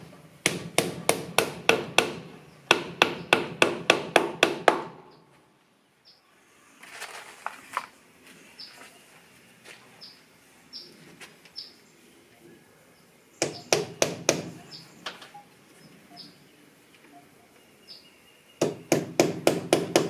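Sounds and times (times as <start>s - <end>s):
bird chirping: 5.0s - 6.3s, 8.4s - 18.9s.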